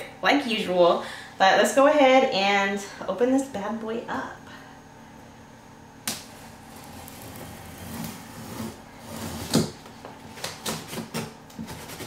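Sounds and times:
scissors cutting packing tape: 0:10.4 - 0:12.0.

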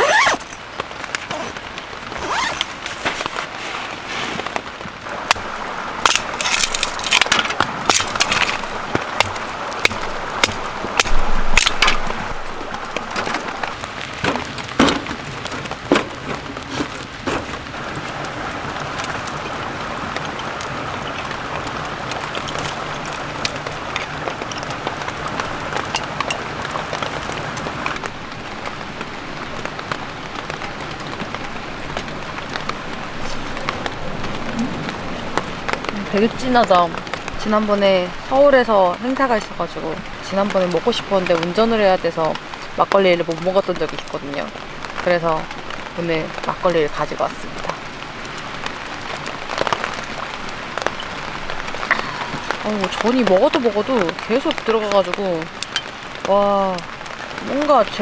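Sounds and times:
rain pattering on a tent: 0:00.0 - 0:58.0
handling clicks and knocks: 0:05.3 - 0:17.6.

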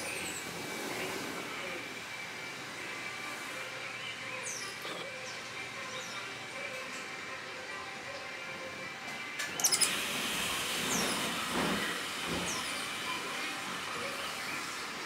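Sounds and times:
small birds chirping: 0:03.4 - 0:06.4, 0:09.5 - 0:10.0.

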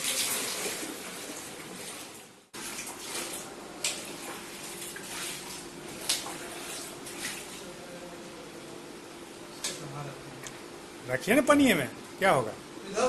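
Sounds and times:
water poured into a washbasin: 0:00.0 - 0:07.7.

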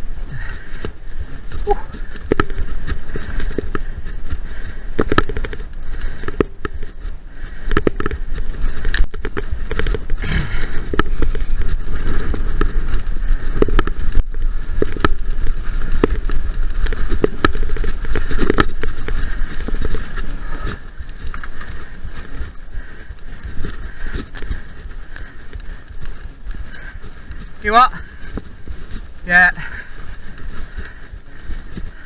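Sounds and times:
bike clattering over bumps: 0:00.0 - 0:32.0
bike tyres rumbling on trail: 0:00.0 - 0:32.0
wind buffeting microphone: 0:00.0 - 0:32.0.

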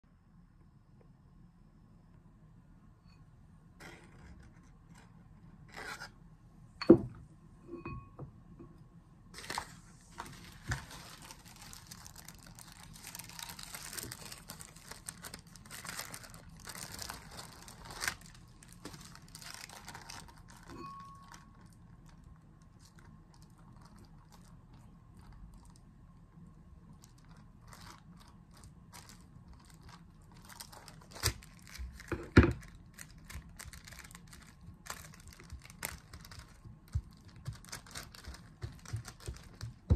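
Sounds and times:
crinkly rustling: 0:09.3 - 0:39.9.

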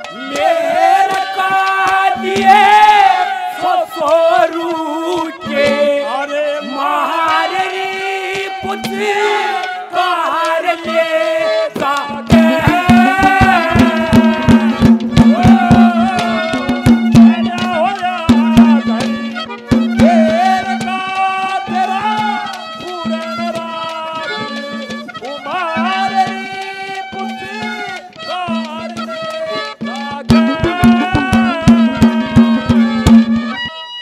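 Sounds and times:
harmonium drone with melody: 0:00.0 - 0:34.0
hand drum strokes: 0:11.8 - 0:33.8.

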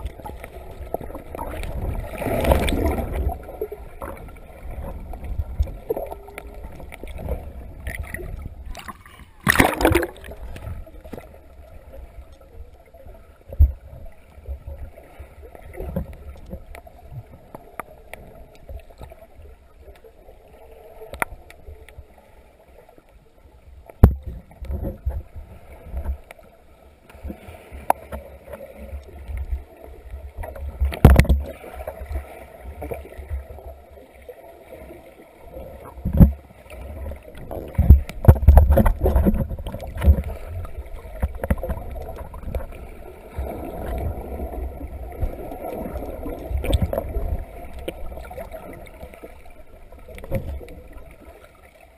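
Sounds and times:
underwater knocks and thumps: 0:00.0 - 0:11.4, 0:13.5 - 0:14.8, 0:23.9 - 0:26.3, 0:30.3 - 0:32.2, 0:35.8 - 0:51.2
underwater rumble and sloshing: 0:00.0 - 0:51.9.

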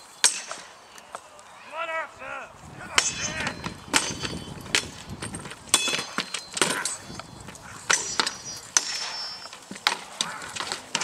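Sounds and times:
metallic ring: 0:03.0 - 0:07.2, 0:07.9 - 0:09.5.

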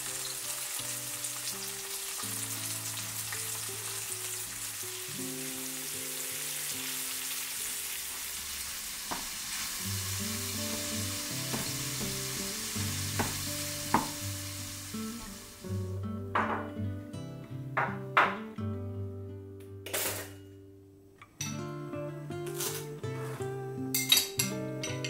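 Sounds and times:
eggs sizzling in a frying pan: 0:00.0 - 0:15.9.

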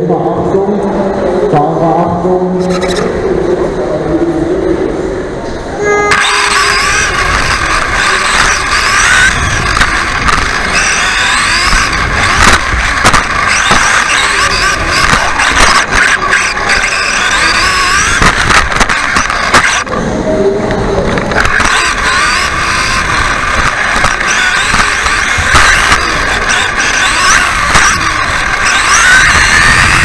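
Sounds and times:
electric motor whine: 0:05.8 - 0:20.0, 0:21.0 - 0:30.0
chassis rattle: 0:06.0 - 0:20.0, 0:20.7 - 0:30.0.

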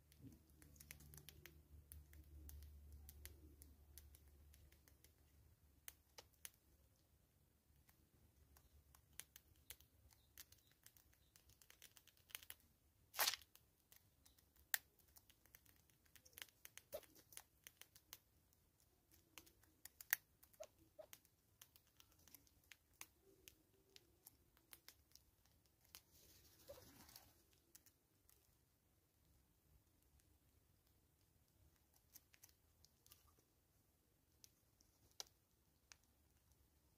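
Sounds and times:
soft rustle: 0:25.7 - 0:28.5.

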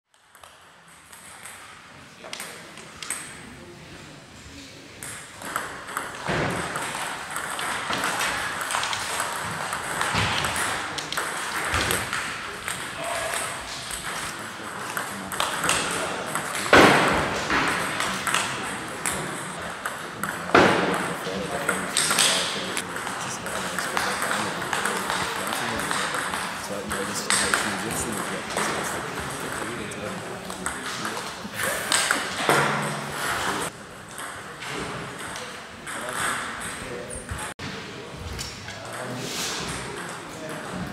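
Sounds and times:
ping pong ball clicking off paddles: 0:05.0 - 0:29.7.

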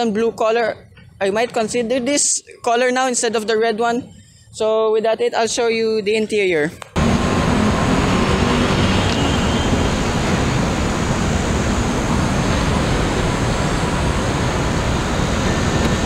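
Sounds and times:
city traffic rushing: 0:07.0 - 0:16.0
wind on microphone: 0:07.6 - 0:16.0.

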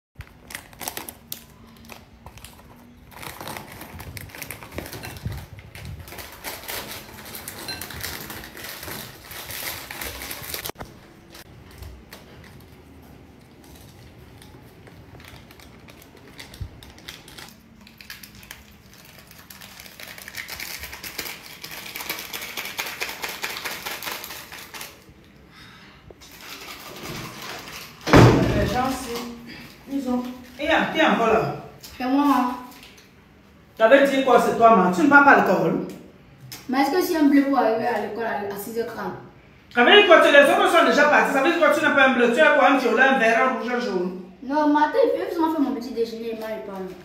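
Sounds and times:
packets tearing open: 0:00.2 - 0:10.8, 0:13.5 - 0:25.1
plastic wrappers crinkling: 0:00.2 - 0:25.4, 0:26.2 - 0:30.9, 0:31.8 - 0:33.2.

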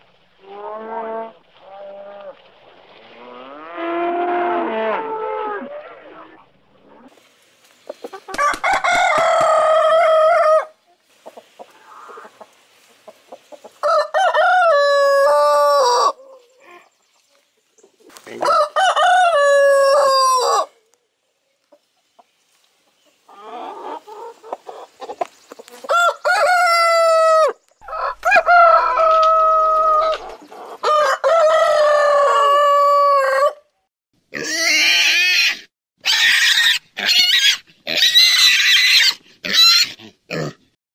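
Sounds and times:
rooster crowing: 0:08.3 - 0:10.8, 0:13.8 - 0:16.2, 0:18.4 - 0:20.8, 0:25.9 - 0:33.6.

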